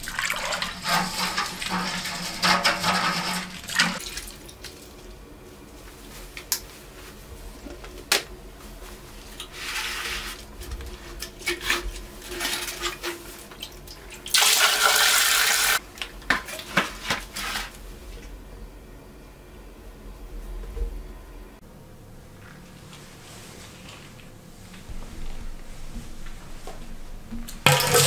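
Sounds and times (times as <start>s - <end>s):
water gushing into toilet bowl: 0.0s - 4.4s, 27.6s - 28.0s.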